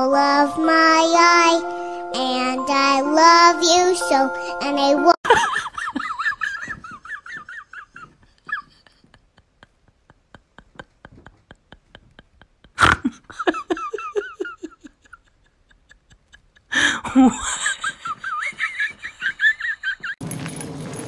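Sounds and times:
person giggling: 5.2s - 20.2s.

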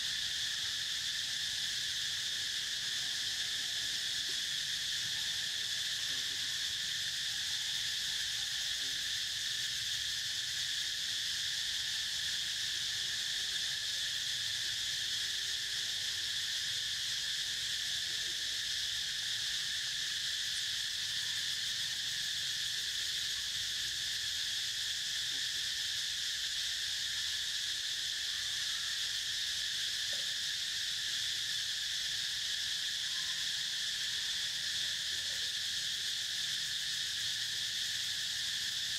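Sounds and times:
insects chorus: 0.0s - 38.9s.

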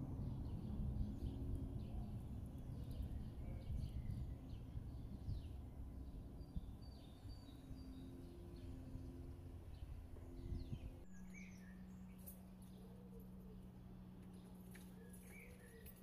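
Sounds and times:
low outdoor rumble: 0.0s - 16.0s
small birds chirping: 0.0s - 16.0s
steady low hum: 0.0s - 16.0s.

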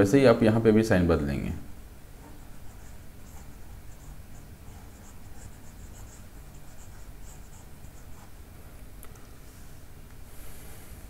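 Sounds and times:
low steady hum: 0.0s - 11.0s
stylus scratching on tablet screen: 2.2s - 8.4s.

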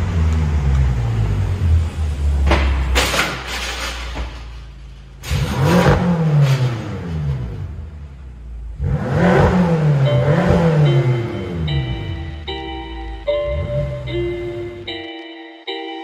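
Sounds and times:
car engine revving: 5.2s - 14.9s.

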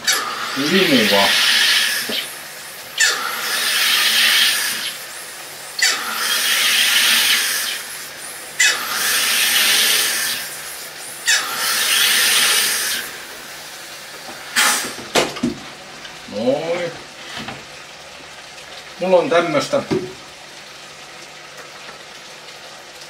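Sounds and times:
gas hissing into bottle: 0.0s - 15.2s
soda maker buzz: 0.0s - 23.0s.

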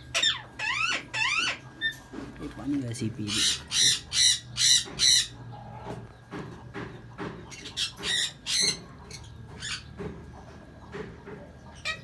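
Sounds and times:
parrots squawking: 0.0s - 2.3s, 3.1s - 5.9s, 7.4s - 10.0s, 11.7s - 12.0s.

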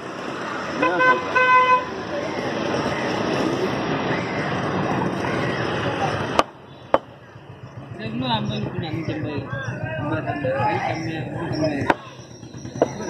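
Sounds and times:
background chatter: 0.0s - 13.0s
street traffic noise: 0.0s - 13.0s
vehicle horn honking: 0.8s - 1.9s.

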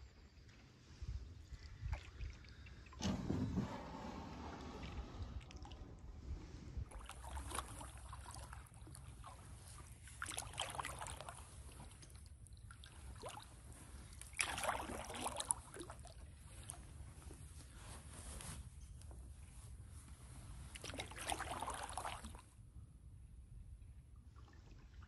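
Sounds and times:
paddle swishing through water: 0.3s - 18.6s, 20.1s - 22.5s
paddle splashing: 1.6s - 12.2s, 12.8s - 16.8s, 20.7s - 22.4s
low steady rumble: 2.5s - 10.3s.

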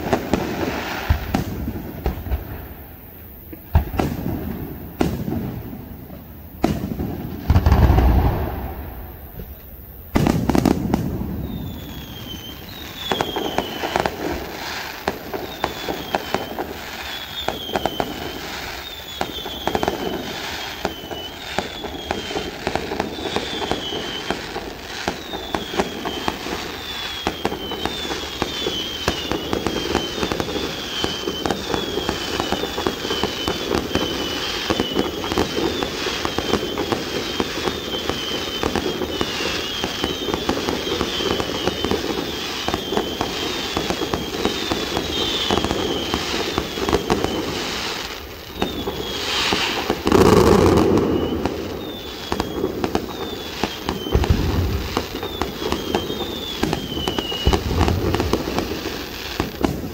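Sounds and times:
fireworks bangs and crackling: 0.0s - 59.9s
fireworks falling whistle: 0.0s - 59.9s.

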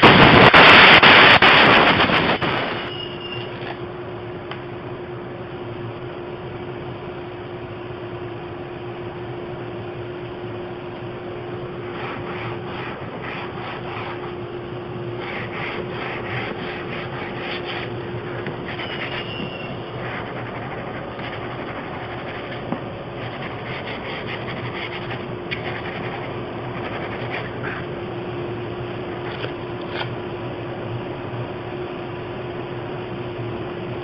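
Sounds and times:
sander rasping strokes: 11.8s - 14.4s, 15.2s - 27.7s.

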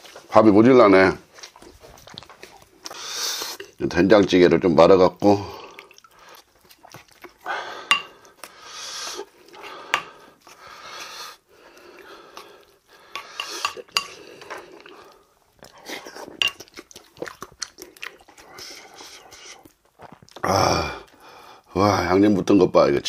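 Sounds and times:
wooden spoon scraping ceramic bowl: 13.2s - 14.6s.

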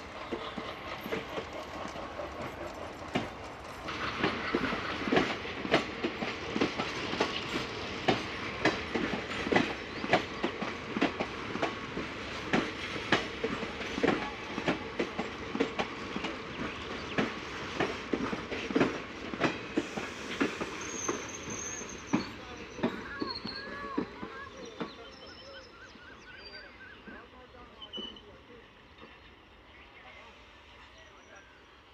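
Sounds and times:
train wheels clacking on rail joints: 0.0s - 25.1s
train rumble: 0.0s - 26.0s.

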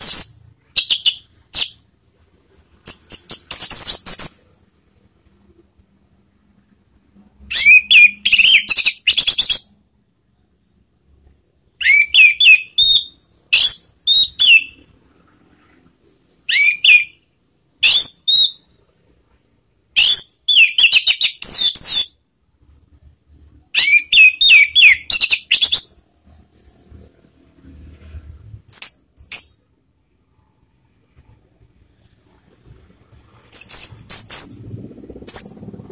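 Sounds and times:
thrush singing whistled notes: 0.0s - 1.9s, 2.8s - 4.5s, 7.4s - 9.8s, 11.8s - 14.8s, 16.3s - 18.7s, 20.0s - 22.2s, 23.8s - 27.8s, 33.0s - 35.9s.

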